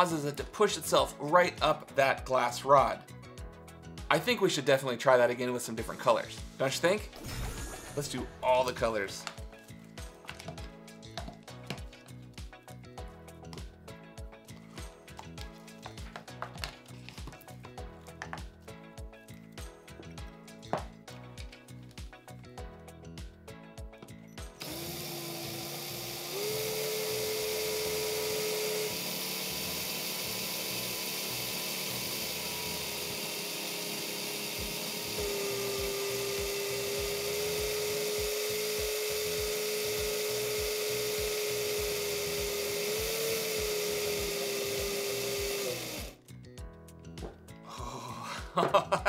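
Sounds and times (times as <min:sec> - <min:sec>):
cordless drill motor whine: 0:24.6 - 0:46.2.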